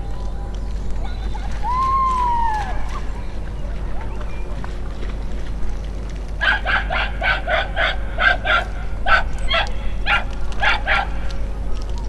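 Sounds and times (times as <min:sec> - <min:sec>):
dog barking: 0:06.4 - 0:11.3.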